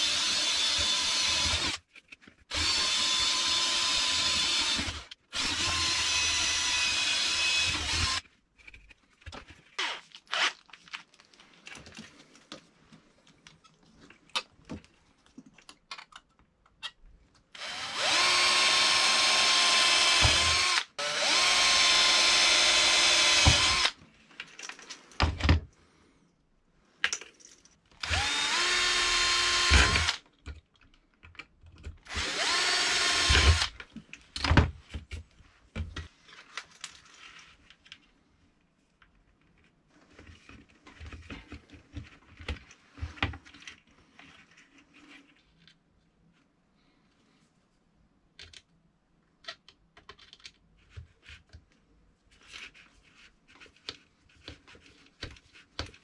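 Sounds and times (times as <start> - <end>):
cordless drill whining: 0.0 - 1.8, 2.5 - 8.2, 9.8 - 10.5, 17.6 - 24.0, 28.0 - 30.2, 32.1 - 33.8.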